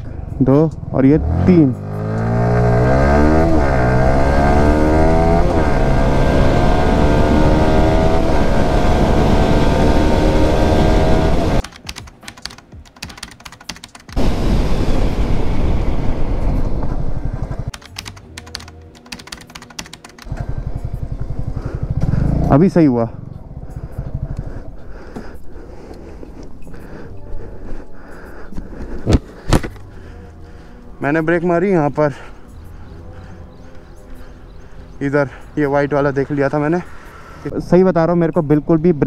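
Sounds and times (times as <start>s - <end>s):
motorcycle engine accelerating: 0.8s - 11.6s, 14.2s - 17.7s, 20.2s - 24.8s
engine ticking: 17.7s - 25.6s
motorcycle engine idling: 20.2s - 25.5s.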